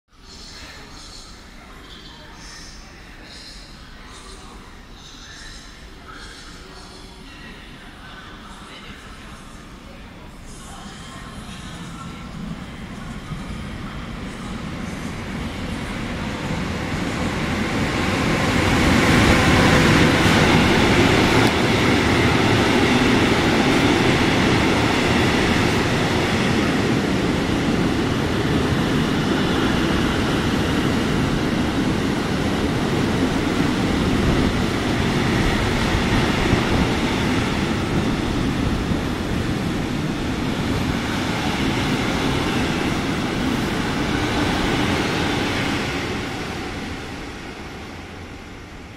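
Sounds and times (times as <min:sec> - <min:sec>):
freight train wheels rumbling: 0:10.4 - 0:48.9.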